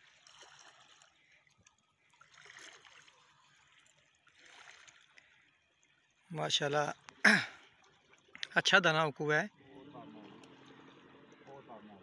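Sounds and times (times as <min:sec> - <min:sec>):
water lapping against rocks: 0:00.0 - 0:06.3.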